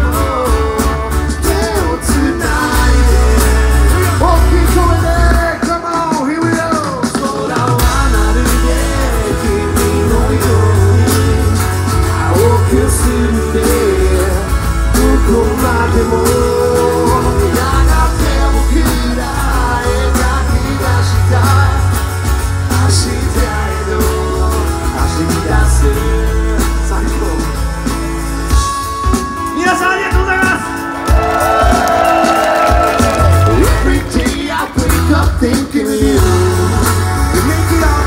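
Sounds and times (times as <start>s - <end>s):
bass: 0.0s - 5.9s, 7.5s - 38.0s
drums: 0.0s - 38.0s
strummed acoustic guitars: 7.0s - 31.2s.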